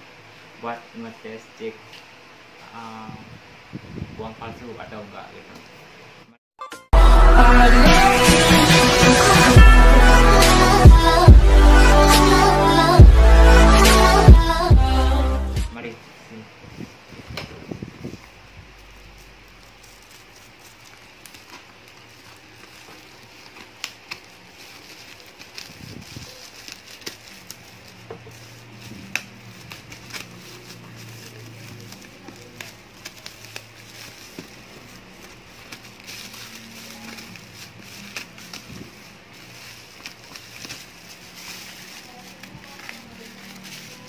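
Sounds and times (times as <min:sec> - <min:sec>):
plastic wrapping crinkling and tearing: 0:18.2 - 0:44.0.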